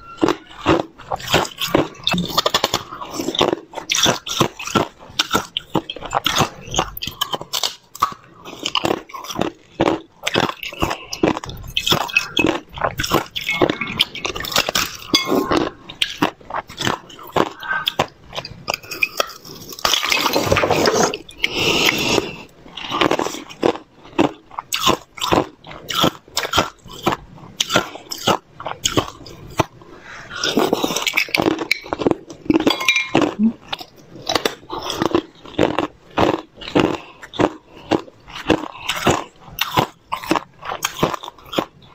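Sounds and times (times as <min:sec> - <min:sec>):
ice being chewed: 0:00.1 - 0:41.9.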